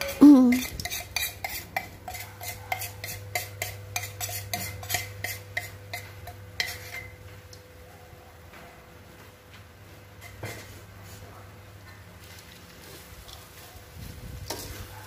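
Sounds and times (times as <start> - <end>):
low steady hum: 0.0 - 1.0
spoon scraping plastic bowl: 0.5 - 7.2.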